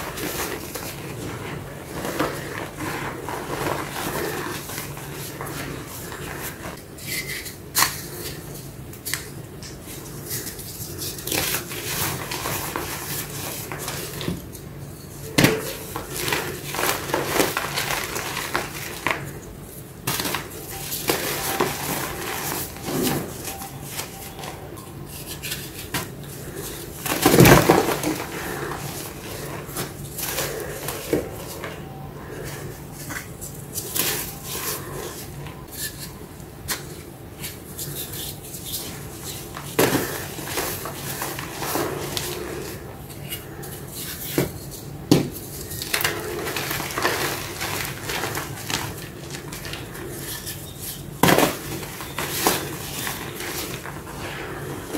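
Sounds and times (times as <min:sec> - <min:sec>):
hands crushing chalk blocks: 0:20.0 - 0:31.8, 0:32.5 - 0:42.8, 0:43.6 - 0:54.9.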